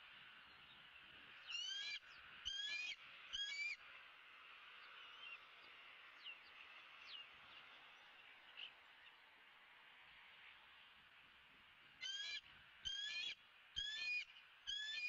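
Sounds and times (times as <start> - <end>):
eagle chittering call: 1.5 - 3.8, 12.0 - 15.0.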